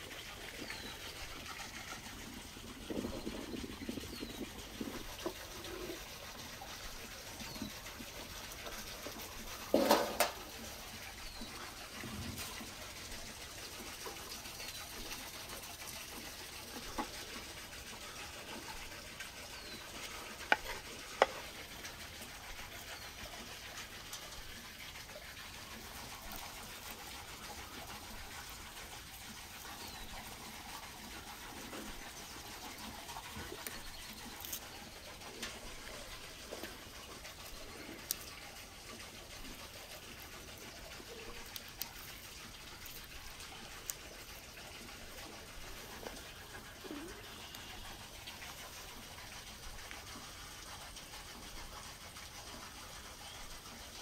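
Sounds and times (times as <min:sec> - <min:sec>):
clatter of serving food: 0:09.7 - 0:10.5.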